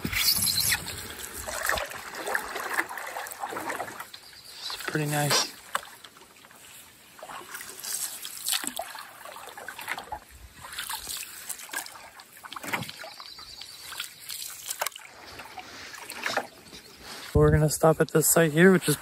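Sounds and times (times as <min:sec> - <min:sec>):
paddle splashing in water: 0:00.0 - 0:17.4
water dripping off paddle: 0:01.5 - 0:16.6.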